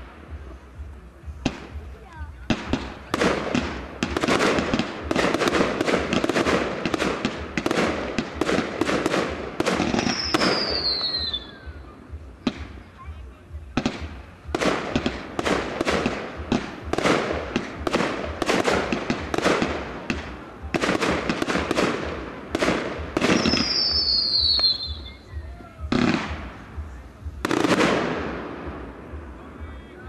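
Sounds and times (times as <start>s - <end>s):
fireworks banging: 0.0s - 30.0s
firework whistle: 9.8s - 11.8s, 23.2s - 26.3s.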